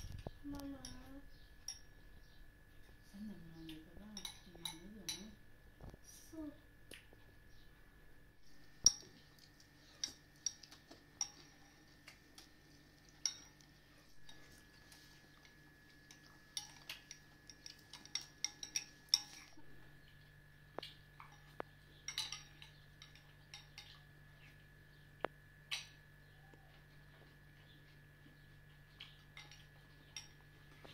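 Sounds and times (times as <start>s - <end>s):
spoons clinking on ceramic bowls: 4.1s - 5.4s, 8.7s - 9.2s, 9.9s - 11.9s, 13.1s - 14.7s, 15.4s - 19.7s, 21.2s - 24.0s, 29.3s - 30.5s.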